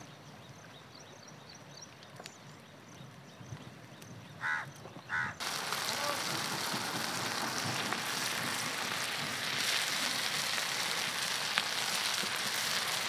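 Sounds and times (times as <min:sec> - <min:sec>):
patties sizzling in oil: 0:05.4 - 0:13.0.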